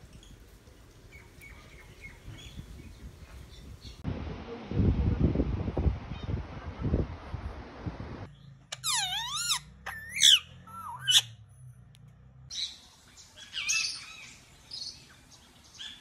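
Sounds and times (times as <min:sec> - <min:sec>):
parakeet calling and chirping: 0:08.7 - 0:11.4.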